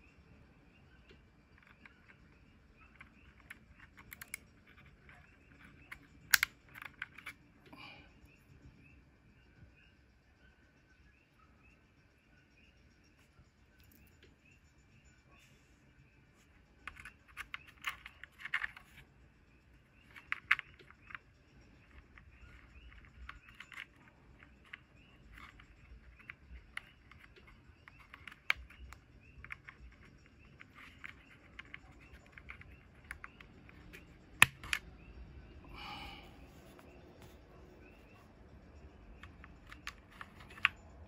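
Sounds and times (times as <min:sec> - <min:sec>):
keyboard switches clacking: 0:03.1 - 0:07.3, 0:30.9 - 0:34.9.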